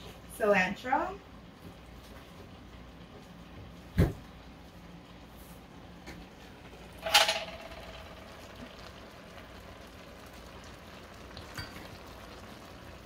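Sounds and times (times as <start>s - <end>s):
pot simmering hiss: 0.0s - 13.0s
sharp metallic clank: 7.0s - 8.4s.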